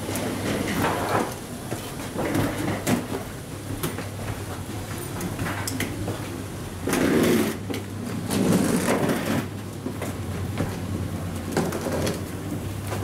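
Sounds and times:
suitcase wheels rolling: 6.8s - 10.2s.

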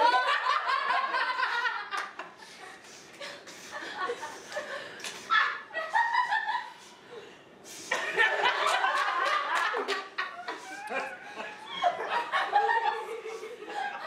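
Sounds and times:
group of people laughing: 0.0s - 7.0s, 7.8s - 14.0s.

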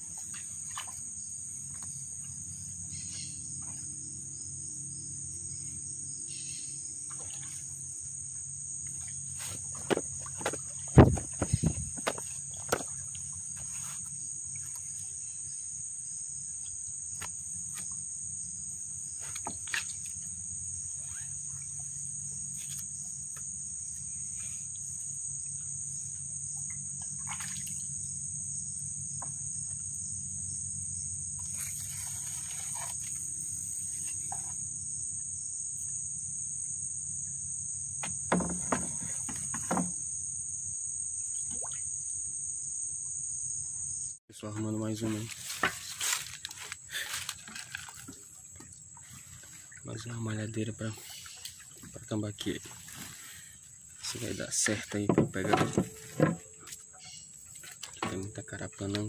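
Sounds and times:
insects chorus: 0.0s - 59.0s
short knocks: 9.8s - 12.9s, 55.0s - 56.5s.

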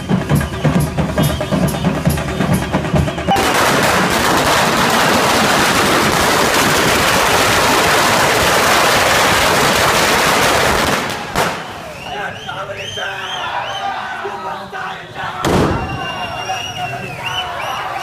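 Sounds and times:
drumbeats: 0.0s - 8.7s
firecrackers crackling: 0.2s - 12.1s, 15.4s - 18.0s.

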